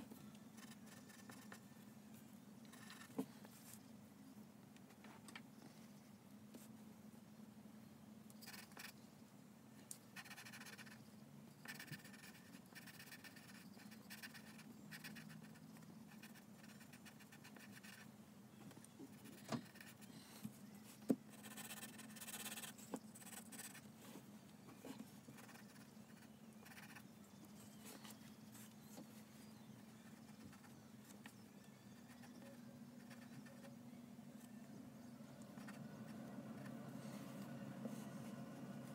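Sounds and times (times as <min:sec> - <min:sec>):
pencil scratching on paper: 0:00.6 - 0:01.6, 0:08.4 - 0:09.0, 0:10.2 - 0:11.0, 0:11.6 - 0:18.0, 0:19.1 - 0:20.1, 0:21.3 - 0:23.8, 0:25.3 - 0:27.0, 0:30.0 - 0:30.8.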